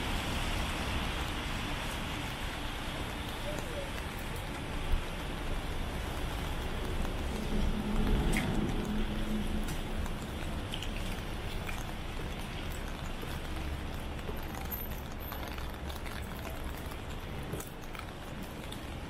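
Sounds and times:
rain pattering: 0.0s - 19.0s
low rumble: 6.9s - 10.8s.

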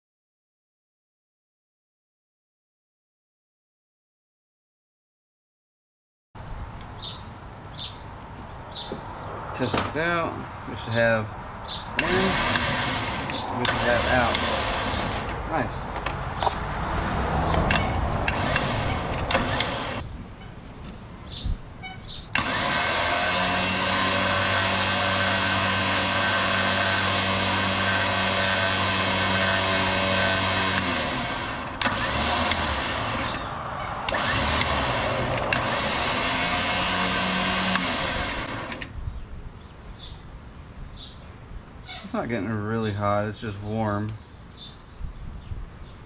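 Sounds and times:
electric winch motor whining: 12.0s - 20.0s, 22.3s - 38.9s.

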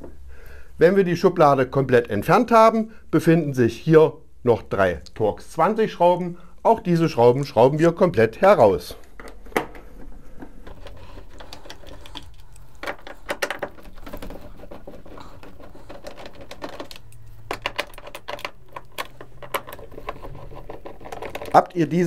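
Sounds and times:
screwdriver clicking and scraping: 10.7s - 21.6s.

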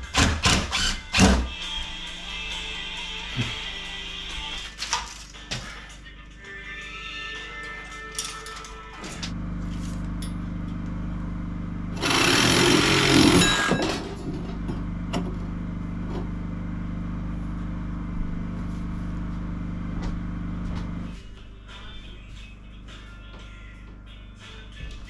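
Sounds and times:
power tool cutting metal: 0.0s - 1.5s, 11.9s - 13.8s
low engine hum: 9.3s - 25.0s.

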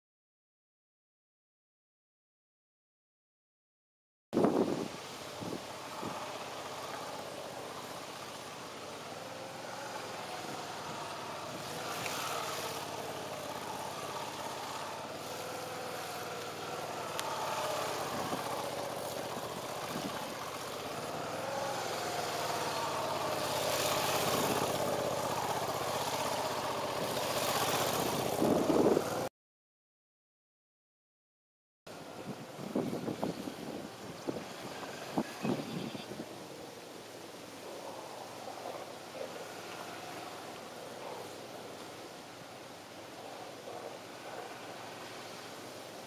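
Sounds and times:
motorcycle engine running: 5.3s - 29.3s.

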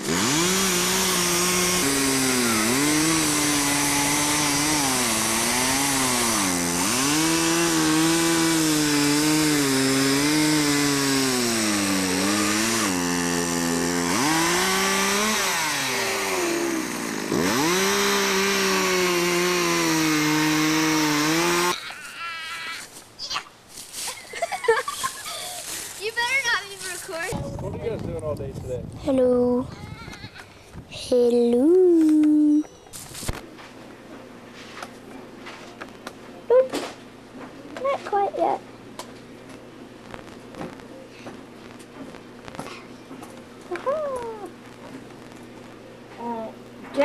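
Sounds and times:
small petrol engine revving: 0.0s - 21.8s.

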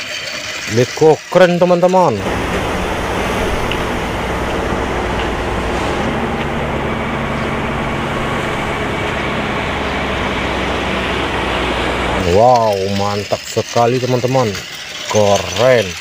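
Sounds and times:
machine humming steadily: 2.2s - 13.4s.

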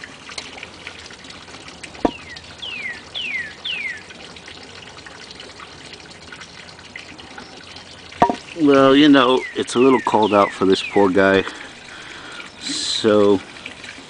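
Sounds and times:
songbird whistling: 2.1s - 4.0s
sharp knock: 8.2s - 8.4s.

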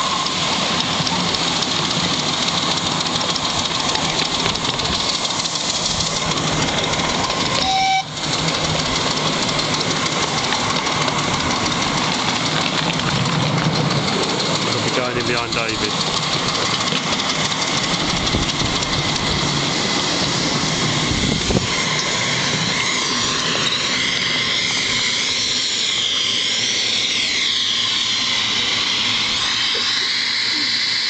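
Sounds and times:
steam locomotive hissing: 0.0s - 31.0s.

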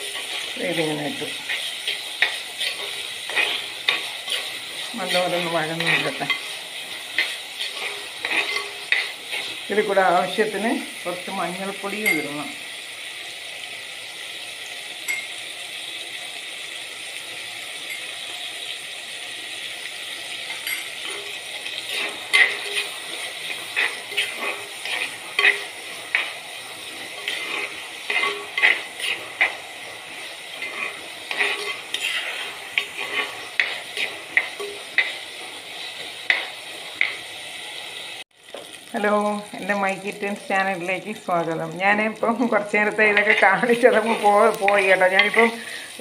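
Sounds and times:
vegetables sizzling in oil: 0.0s - 46.0s
metal spoon scraping pot: 1.4s - 9.9s, 20.5s - 35.2s.

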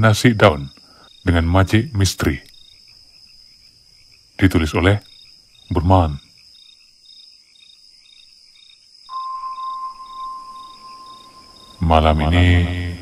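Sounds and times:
crickets trilling: 0.0s - 13.0s
soft hiss: 9.1s - 13.0s
steady mid-pitched tone: 9.1s - 13.0s.

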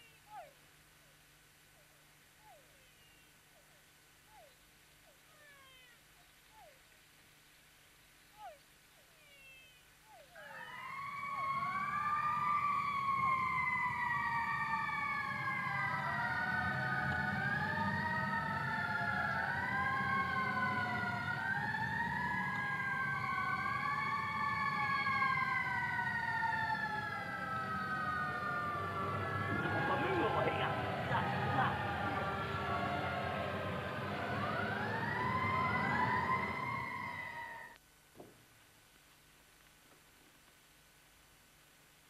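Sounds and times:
overlapping wailing tones: 8.4s - 37.8s.

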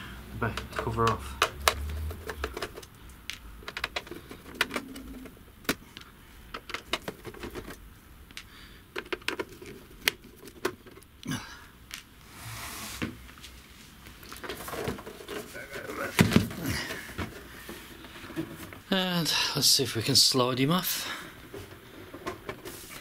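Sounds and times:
short scrape: 12.2s - 13.2s.

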